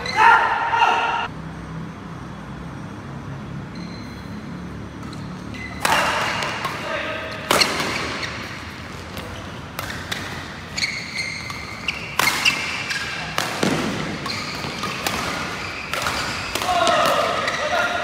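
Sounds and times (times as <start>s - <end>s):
shoe squeaks on court floor: 3.7s - 6.6s, 7.4s - 16.5s
racket striking shuttlecock: 5.0s - 18.0s.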